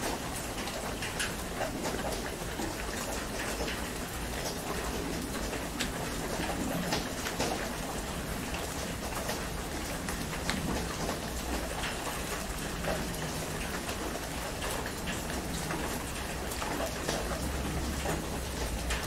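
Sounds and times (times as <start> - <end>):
heavy rain on a tent: 0.0 - 19.0
raindrop taps: 0.0 - 19.0.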